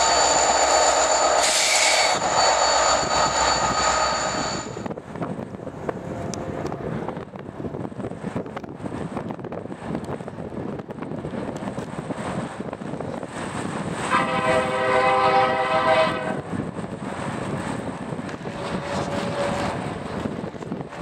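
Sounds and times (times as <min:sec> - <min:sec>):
wind noise: 0:00.0 - 0:21.0
distant locomotive air horn: 0:14.0 - 0:16.4, 0:18.4 - 0:19.8.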